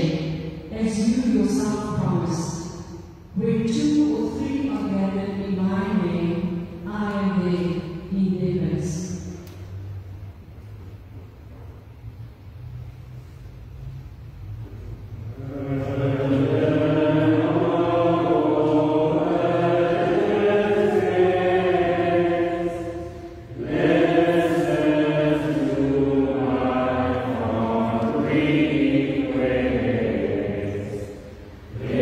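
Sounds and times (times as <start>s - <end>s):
voices singing a slow hymn: 15.1s - 32.0s.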